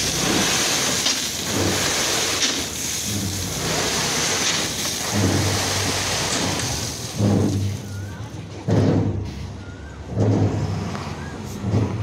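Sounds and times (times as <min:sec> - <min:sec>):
gravel pouring off truck: 0:00.0 - 0:08.3
truck engine humming: 0:00.0 - 0:12.0.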